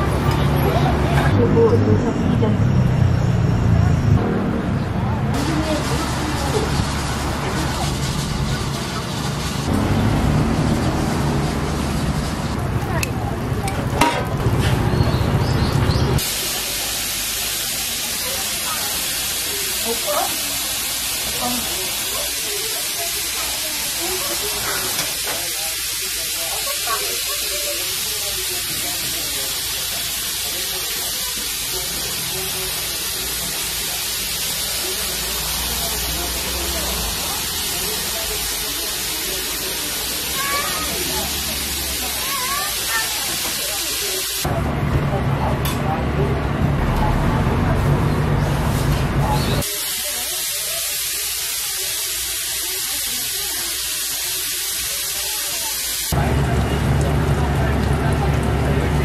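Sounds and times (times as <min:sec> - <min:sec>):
busy background noise: 0:00.0 - 0:59.0
faint voices murmuring: 0:00.0 - 0:59.0
steady hiss: 0:16.2 - 0:44.5, 0:49.6 - 0:56.2.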